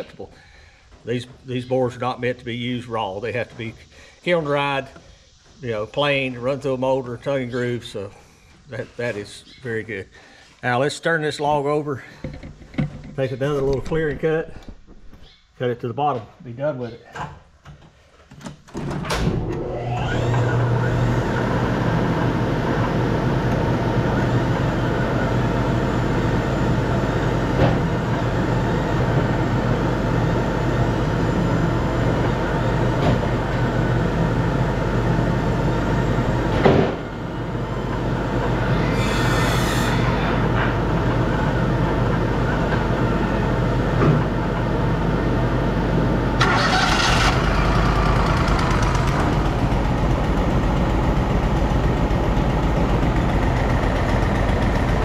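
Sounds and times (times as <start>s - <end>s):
sawmill engine running: 19.2s - 55.0s.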